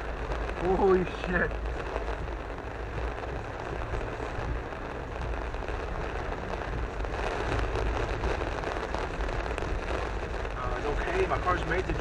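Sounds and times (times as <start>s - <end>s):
car rumble: 0.0s - 12.0s
rain and tyre spray hiss: 0.0s - 12.0s.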